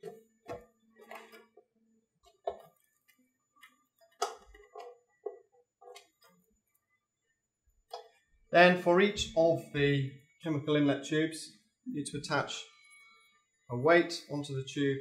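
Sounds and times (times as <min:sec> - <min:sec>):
plastic clicks and taps: 0:03.6 - 0:06.1.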